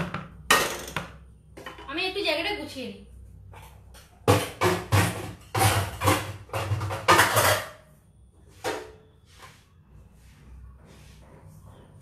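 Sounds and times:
kitchen items knocking and clattering: 0.0s - 2.2s, 3.4s - 9.2s.

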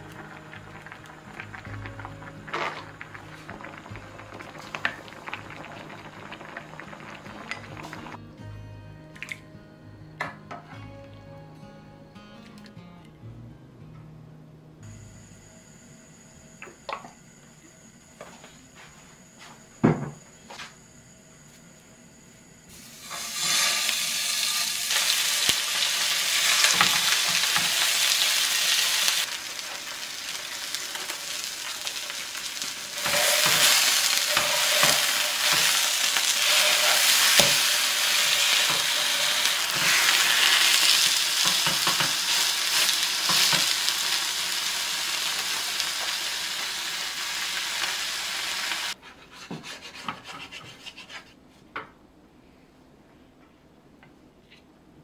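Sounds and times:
fish sizzling in oil: 0.0s - 8.2s, 22.8s - 49.0s.

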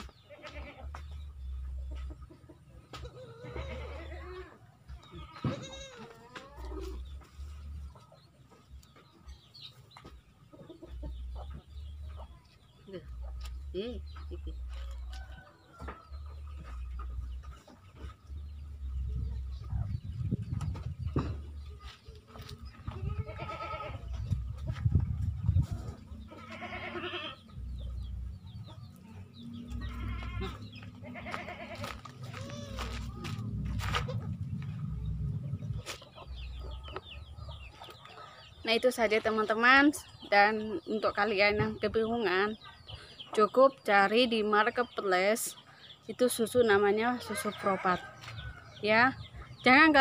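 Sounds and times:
goat bleating: 0.3s - 1.0s, 3.0s - 7.0s, 22.9s - 24.1s, 26.3s - 27.6s, 29.6s - 34.3s
low rumbles: 11.0s - 26.7s, 27.4s - 37.8s
loud low bumps: 33.1s - 35.8s.

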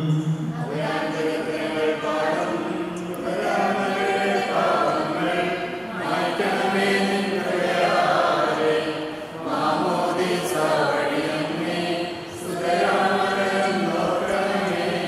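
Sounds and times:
group singing a hymn: 0.0s - 15.0s.

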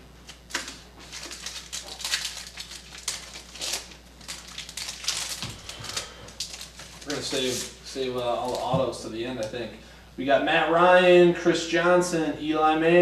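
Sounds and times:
foil wrappers crinkling: 0.2s - 9.6s.

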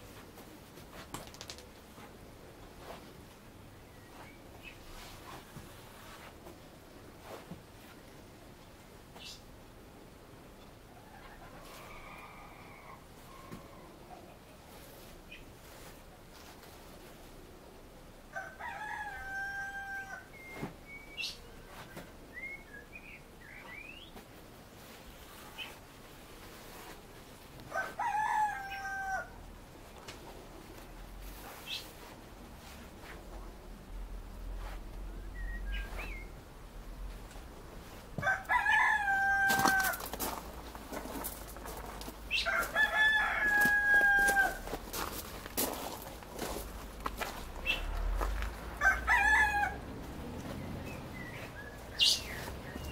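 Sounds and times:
rooster crowing: 11.2s - 13.9s, 18.3s - 20.4s, 27.7s - 29.4s, 38.2s - 40.2s, 42.3s - 44.8s, 47.6s - 50.0s.

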